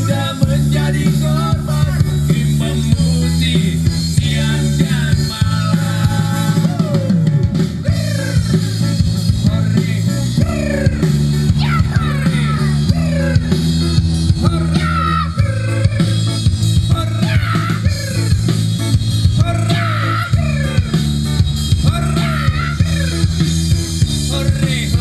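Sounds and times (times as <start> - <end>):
person singing over a band: 0.0 - 18.6, 19.4 - 25.0.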